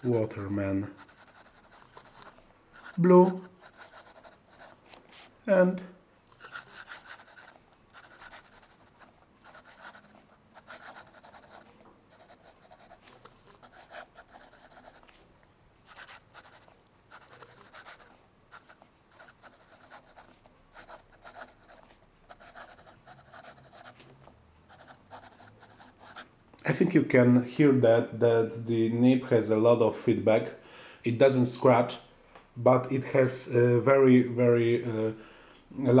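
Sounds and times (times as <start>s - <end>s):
fountain pen scratching on paper: 0.9s - 5.3s, 6.4s - 15.2s, 15.9s - 24.1s, 24.7s - 26.2s.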